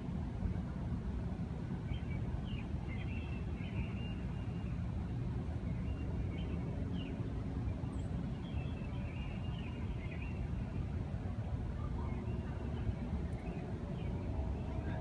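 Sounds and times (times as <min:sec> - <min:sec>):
steady low rumble: 0:09.7 - 0:15.0.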